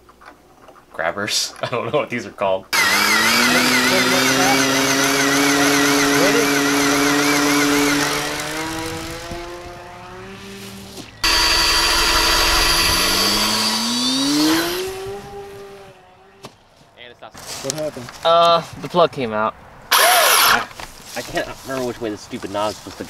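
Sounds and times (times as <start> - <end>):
electric motors whining: 2.8 - 16.2, 19.9 - 20.7.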